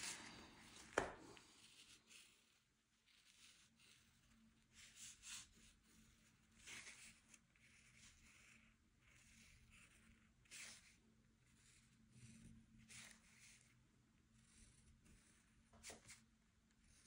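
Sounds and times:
brush strokes on paper: 0.0s - 11.0s.

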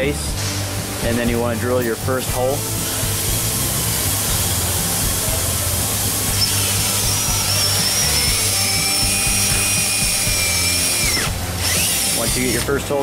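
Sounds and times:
background music: 0.0s - 13.0s
power drill whining: 2.6s - 12.9s.

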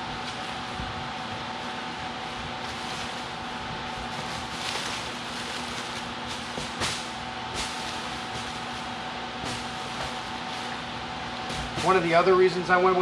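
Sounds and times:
steady hum: 0.0s - 13.0s
plastic wrapping rustling: 2.6s - 8.9s.

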